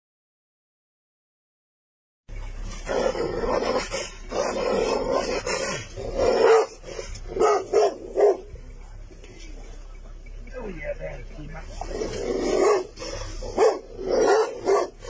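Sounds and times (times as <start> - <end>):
large dog barking: 2.8 - 8.5, 11.8 - 15.0.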